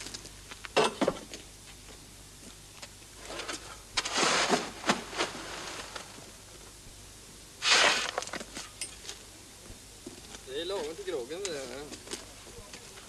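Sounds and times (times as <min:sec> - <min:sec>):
shovel scraping ice in wheelbarrow: 0:03.3 - 0:06.2, 0:07.6 - 0:08.5.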